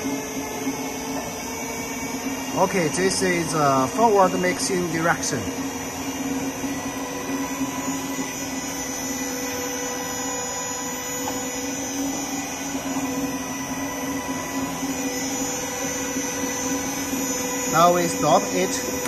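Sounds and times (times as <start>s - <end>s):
mixer motor humming with whine: 0.0s - 19.0s.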